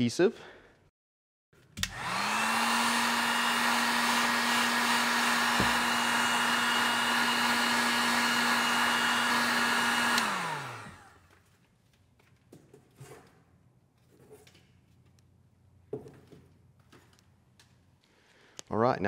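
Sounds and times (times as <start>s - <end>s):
heat gun blowing air: 1.8s - 11.2s
motor winding down: 1.8s - 11.2s
heat gun switch click: 10.0s - 10.4s.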